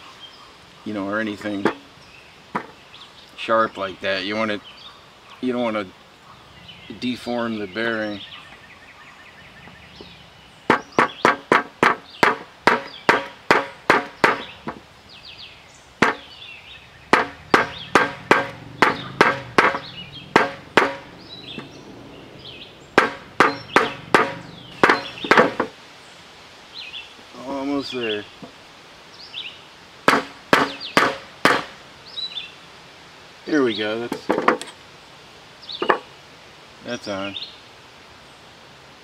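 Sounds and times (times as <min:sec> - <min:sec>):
hammer knocking on wood block: 0:10.7 - 0:14.8, 0:16.0 - 0:16.2, 0:17.1 - 0:21.7, 0:23.0 - 0:25.7, 0:30.1 - 0:31.7.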